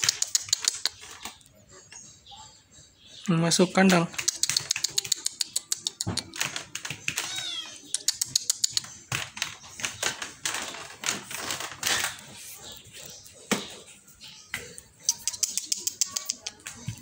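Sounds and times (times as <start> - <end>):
rapid sharp clicks and taps: 3.9 - 11.3.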